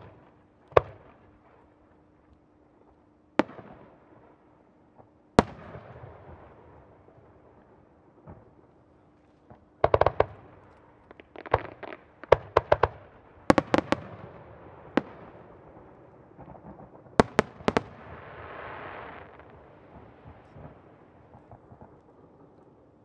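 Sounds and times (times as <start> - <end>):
firework shells bursting: 9.5 - 14.0.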